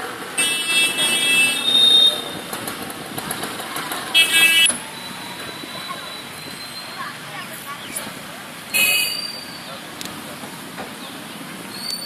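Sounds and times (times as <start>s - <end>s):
street hubbub: 0.0s - 12.0s
vehicle horn honking: 0.4s - 2.2s, 4.2s - 4.8s.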